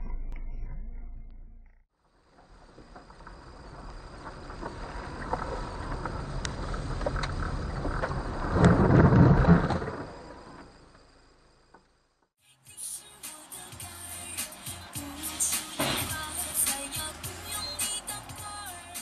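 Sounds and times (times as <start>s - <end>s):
car rumbling on dirt road: 2.2s - 11.8s.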